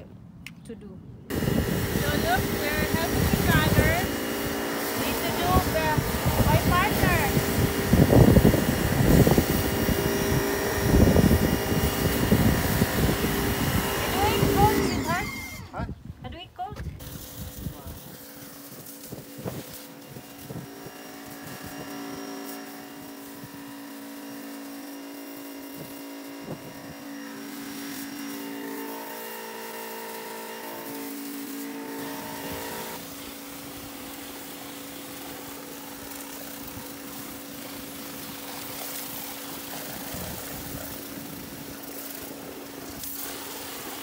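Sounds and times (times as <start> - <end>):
water jet hissing on wood: 1.3 - 15.8, 17.0 - 44.0
pressure washer motor humming: 1.3 - 15.9, 17.0 - 44.0.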